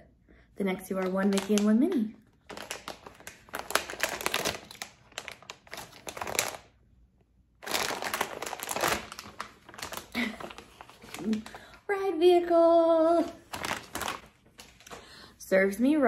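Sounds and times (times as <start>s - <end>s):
foil bag crinkling: 0.9s - 6.8s, 7.6s - 12.0s, 12.9s - 15.2s.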